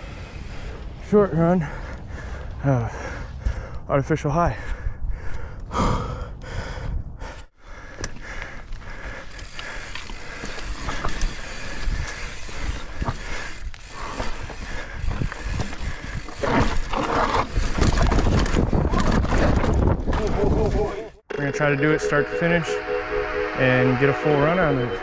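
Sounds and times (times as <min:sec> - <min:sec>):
bike tyres on dirt and rock: 0:00.0 - 0:03.8, 0:07.6 - 0:20.9.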